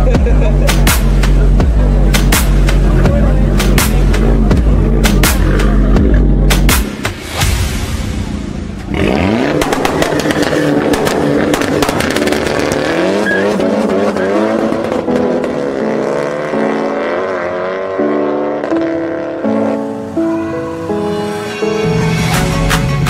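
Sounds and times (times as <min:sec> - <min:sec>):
car engine revving: 0:08.2 - 0:23.0
exhaust pops and crackles: 0:09.5 - 0:12.9.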